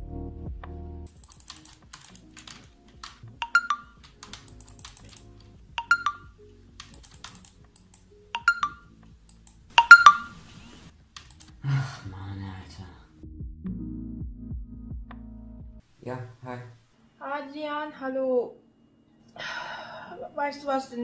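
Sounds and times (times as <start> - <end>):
keyboard typing clicks: 1.2 - 10.3
two-note notification chime: 5.8 - 6.3, 9.8 - 10.4.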